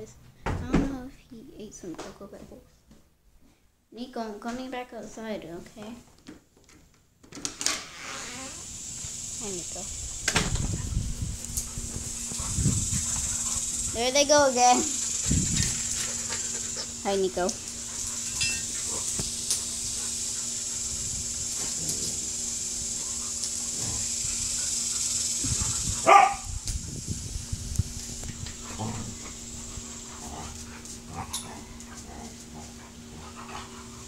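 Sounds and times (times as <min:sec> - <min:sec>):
dogs barking: 0:24.7 - 0:26.5.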